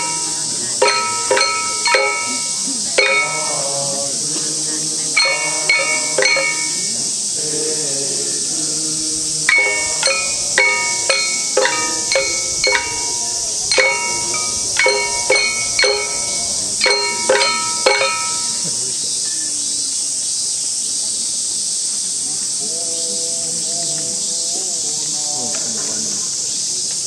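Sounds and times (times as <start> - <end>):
small metal gongs struck: 0.0 - 3.7, 5.2 - 6.9, 9.5 - 18.6
high insect drone: 0.0 - 27.0
voices chanting: 0.0 - 27.0.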